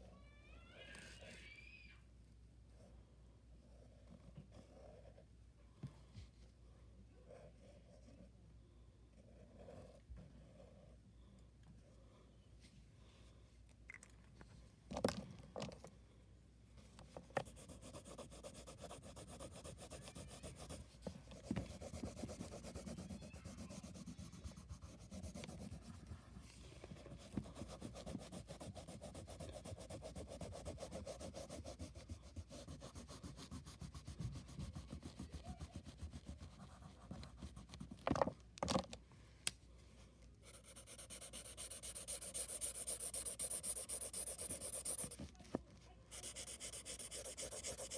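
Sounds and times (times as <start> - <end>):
crayon rubbing on paper: 17.4 - 26.4, 27.0 - 37.9, 40.5 - 45.4, 46.1 - 47.9.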